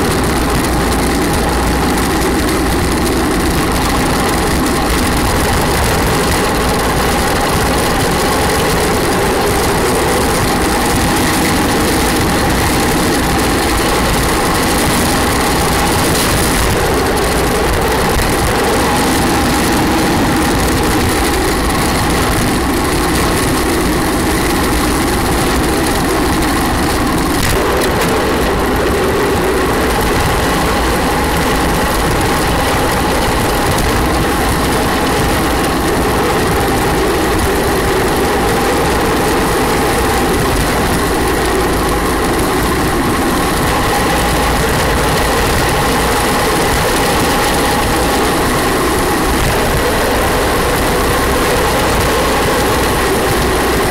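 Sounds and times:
chassis vibrating: 0.0s - 53.9s
wheels rolling on asphalt: 0.0s - 53.9s.

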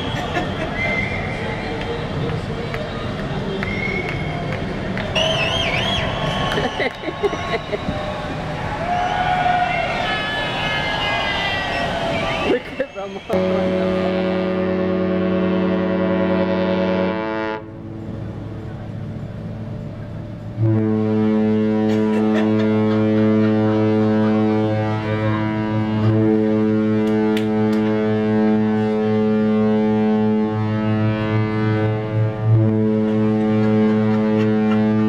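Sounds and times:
ship horn blast: 13.3s - 19.2s, 19.8s - 35.0s
deep ship horn: 13.3s - 35.0s.

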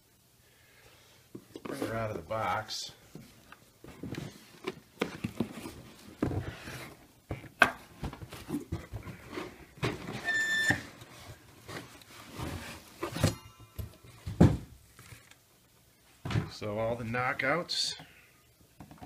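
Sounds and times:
short squeak: 10.2s - 10.9s.

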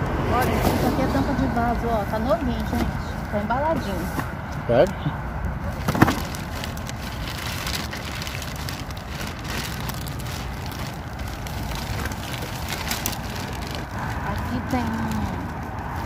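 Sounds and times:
steady background noise: 0.0s - 16.0s
plastic crackling and rustling: 5.7s - 16.0s.

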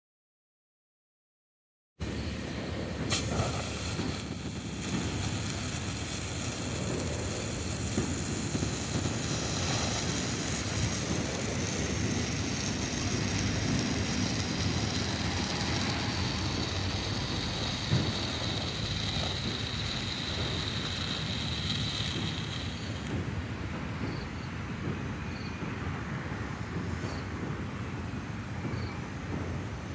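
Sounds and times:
firework fountain hissing: 2.0s - 29.9s
sharp crack: 2.1s - 25.0s.

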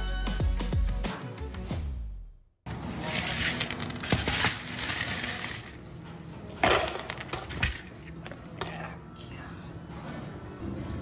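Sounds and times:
coins clattering into container: 2.9s - 5.8s.

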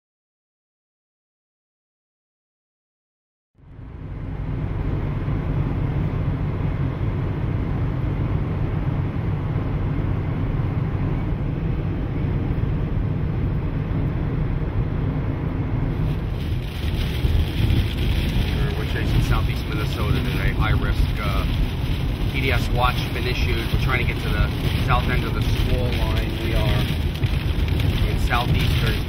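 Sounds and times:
road and wind noise in car: 3.6s - 29.0s
rain pattering on windshield: 15.9s - 29.0s.

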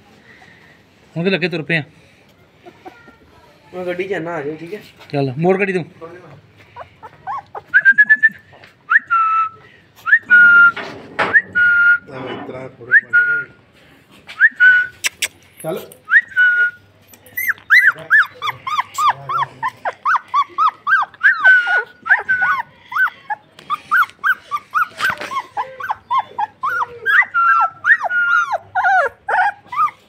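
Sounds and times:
puppies whining and yelping: 6.7s - 8.5s, 16.5s - 30.0s.

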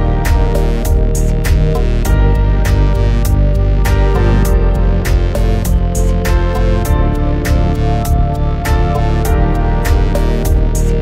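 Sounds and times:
steady percussive beat: 0.2s - 11.0s
sustained instrumental tones: 2.3s - 8.6s.

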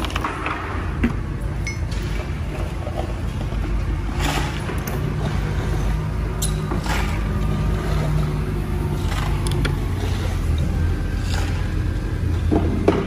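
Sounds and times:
knocks and clinks: 1.6s - 2.2s.

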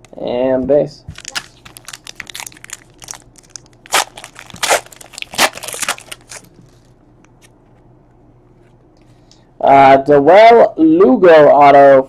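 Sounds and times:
cards shuffled by hand: 1.1s - 7.6s.

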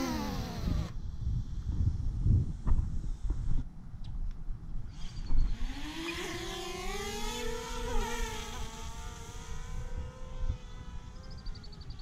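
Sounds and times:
drone propellers whining: 0.0s - 1.0s, 4.9s - 12.0s.

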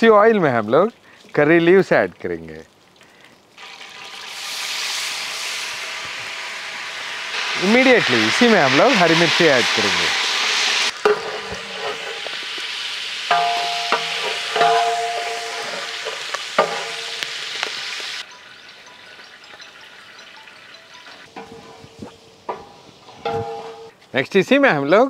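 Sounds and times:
chillies sizzling in hot oil: 3.2s - 24.0s
spoon knocking against pot: 13.3s - 16.0s.

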